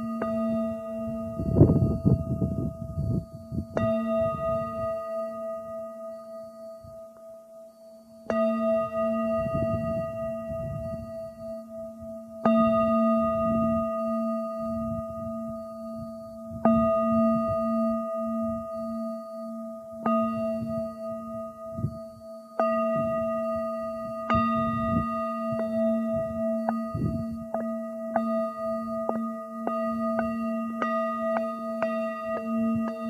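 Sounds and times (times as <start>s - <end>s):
wind rumble on microphone: 0.0s - 5.1s, 8.4s - 19.0s, 20.1s - 33.0s
low pulsing hum: 0.0s - 5.6s, 8.3s - 33.0s
metal instrument struck and ringing: 8.0s - 33.0s.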